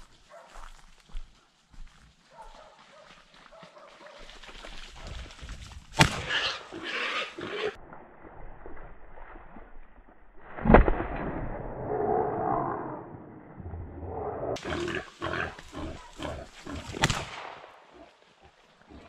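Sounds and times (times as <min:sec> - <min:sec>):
shotgun shots: 0:06.0 - 0:06.4, 0:17.0 - 0:17.8
animal noise: 0:13.9 - 0:17.1.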